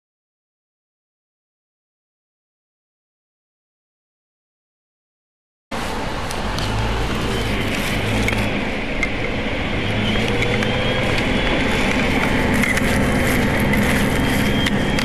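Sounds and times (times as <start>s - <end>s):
diesel bus engine idling: 5.8s - 15.0s.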